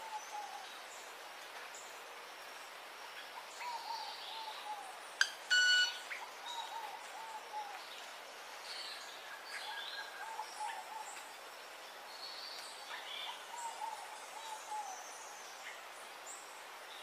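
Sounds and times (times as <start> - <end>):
steady forest hiss: 0.0 - 17.0.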